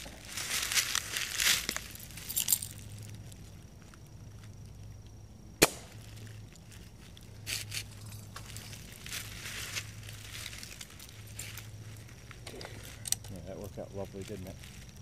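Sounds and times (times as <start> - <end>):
rustling in dry leaves: 0.0 - 4.8, 5.9 - 15.0
gunshot: 5.6 - 6.0.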